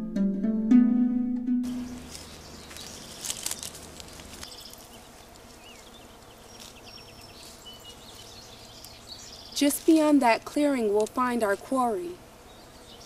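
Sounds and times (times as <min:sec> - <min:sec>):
brush rustling: 0:01.6 - 0:13.0
insects: 0:01.7 - 0:10.0.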